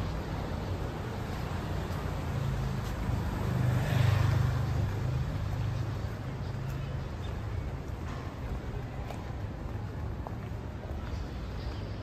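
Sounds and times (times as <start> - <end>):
vehicle passing: 0.0 - 7.0
street background noise: 0.0 - 12.0.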